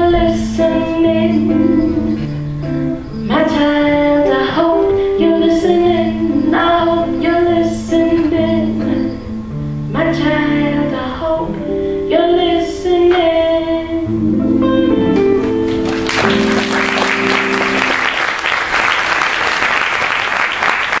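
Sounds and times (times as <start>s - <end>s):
woman singing into microphone: 0.0s - 14.3s
audience applauding: 15.4s - 21.0s.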